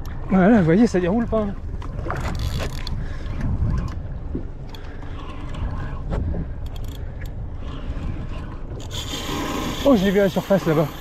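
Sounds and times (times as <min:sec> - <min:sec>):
wind rumble on microphone: 0:00.0 - 0:10.2
water moving around boat: 0:00.0 - 0:11.0
fishing reel clicks and scrapes: 0:06.7 - 0:07.0, 0:07.6 - 0:11.0.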